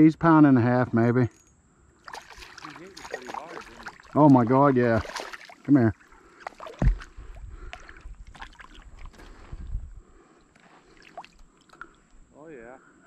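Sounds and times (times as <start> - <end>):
water splashing and dripping: 2.0 - 9.5, 10.9 - 12.2
thump: 6.8 - 7.1.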